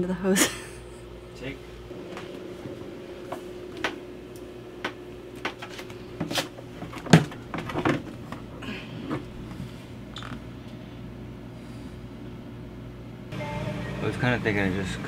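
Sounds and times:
faint hum: 0.0 - 15.0.

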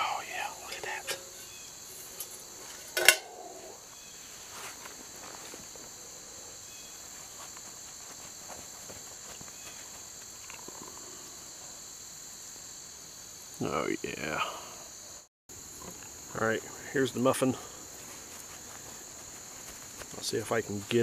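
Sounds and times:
insects chirring: 0.0 - 21.0
metal cooking pot clank: 2.2 - 3.6.

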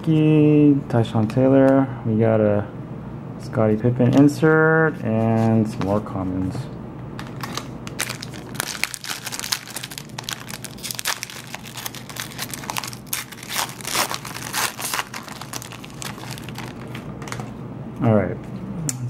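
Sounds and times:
foil wrapper tearing and crinkling: 7.4 - 17.4.

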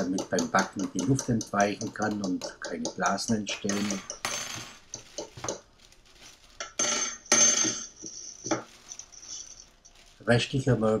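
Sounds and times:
plastic bag rustling and crinkling: 3.6 - 7.3, 7.9 - 11.0.

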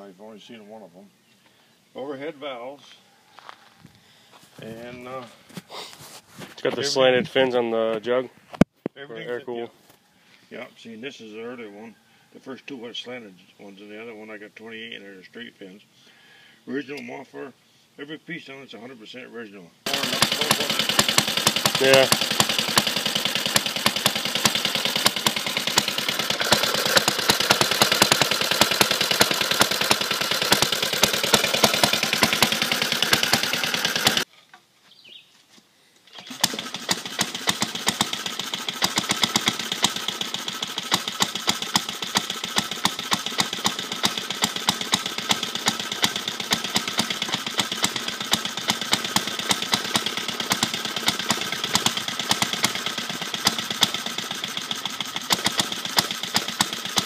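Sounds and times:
small engine running with even pops: 19.9 - 34.3, 36.1 - 57.0.

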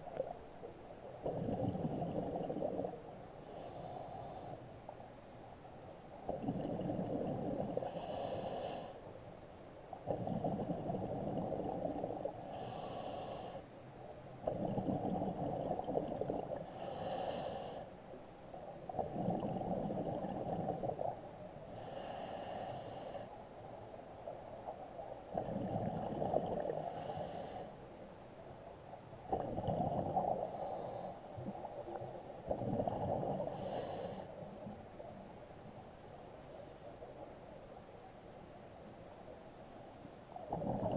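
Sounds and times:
exhaled bubbles rumbling: 0.0 - 3.2, 6.3 - 7.8, 10.0 - 12.4, 14.4 - 16.7, 18.9 - 21.2, 25.3 - 26.9, 29.3 - 30.5, 31.3 - 33.5, 40.4 - 40.9.

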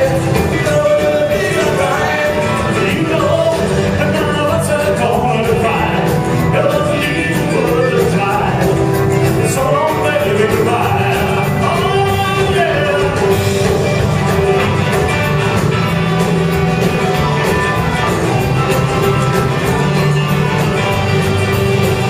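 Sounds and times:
man singing: 0.0 - 13.7
live rockabilly band: 0.0 - 22.0.

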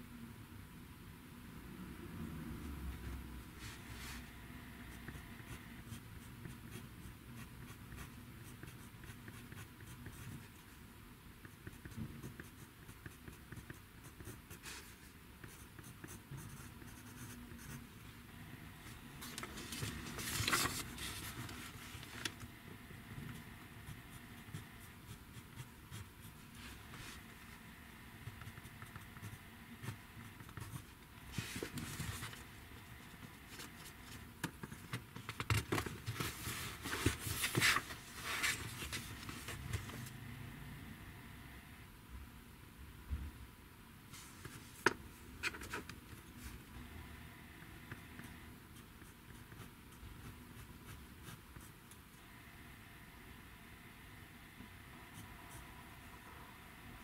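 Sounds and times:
pen scratching on paper: 4.8 - 10.8, 11.4 - 17.9, 23.3 - 27.3, 28.2 - 30.9, 47.9 - 51.8.

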